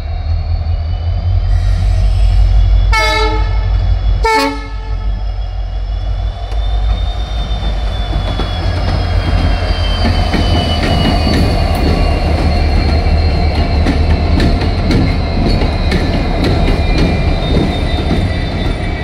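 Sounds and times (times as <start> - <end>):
diesel locomotive rumble: 0.0 - 19.0
train horn blasts: 2.9 - 5.1.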